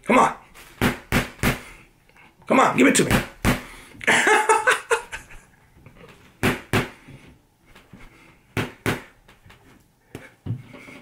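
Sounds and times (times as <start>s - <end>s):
boxing gloves thudding: 0.8s - 1.6s, 3.1s - 3.7s, 6.4s - 7.0s, 8.6s - 9.2s.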